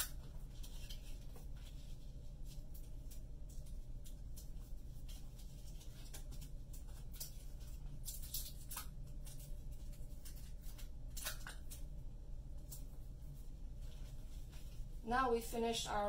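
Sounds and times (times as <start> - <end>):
paper being handled: 0.0 - 11.9
tape pulled and torn: 10.2 - 11.8.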